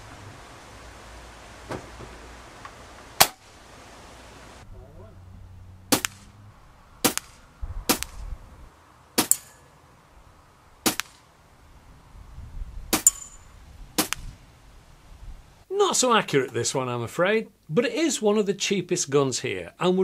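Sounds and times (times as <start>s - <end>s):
air rifle shot cracks: 3.2s - 3.5s, 5.9s - 6.4s, 7.0s - 8.3s, 9.2s - 9.6s, 10.8s - 11.3s, 14.0s - 14.3s
high metallic ring: 13.0s - 13.5s.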